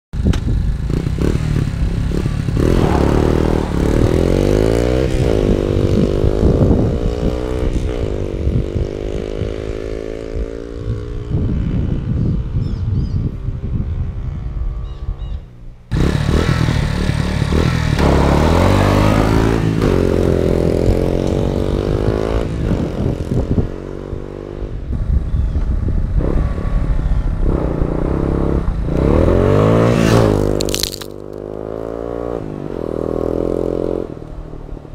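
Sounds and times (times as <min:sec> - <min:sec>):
motorcycle engine revving: 0:00.2 - 0:12.5, 0:15.9 - 0:34.9
gravel clattering: 0:30.4 - 0:31.6.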